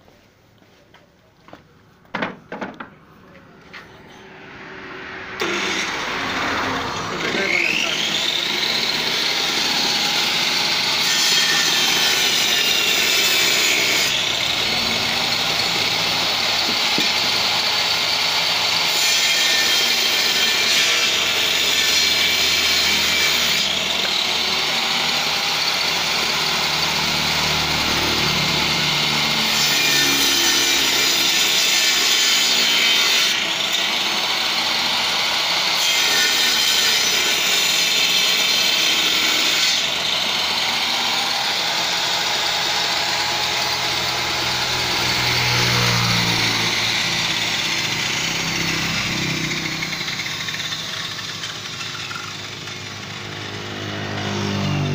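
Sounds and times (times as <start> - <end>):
circular saw cutting wood: 3.8 - 54.9.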